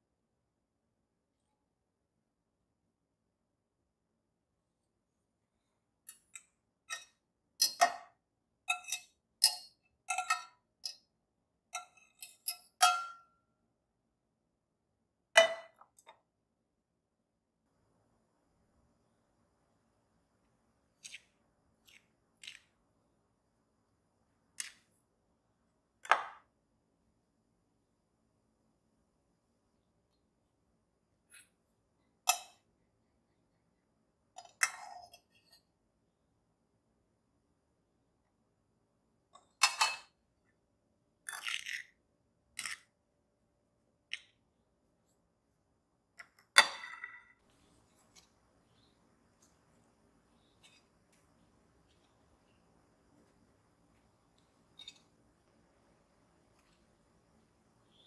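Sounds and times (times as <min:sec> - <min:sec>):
fork clinking against porcelain bowl: 0:08.7 - 0:11.0.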